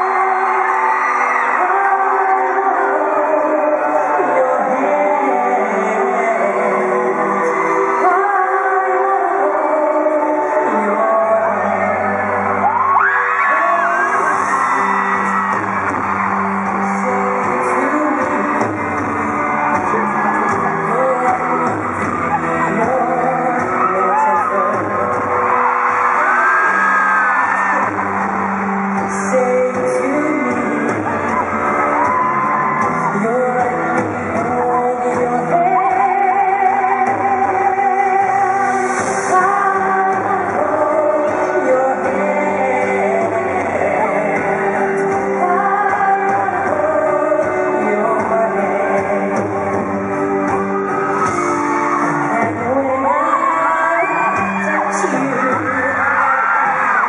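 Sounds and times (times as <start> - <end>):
man singing long notes: 0.0 - 50.6, 52.1 - 57.0
fans screaming and whooping: 0.0 - 57.0
live band playing: 0.0 - 57.0.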